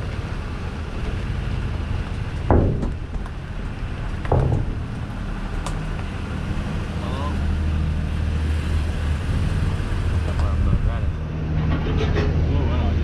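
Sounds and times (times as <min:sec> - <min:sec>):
car engine and road rumble: 0:00.0 - 0:13.0
wheels clunking over ramp joints: 0:01.0 - 0:06.2.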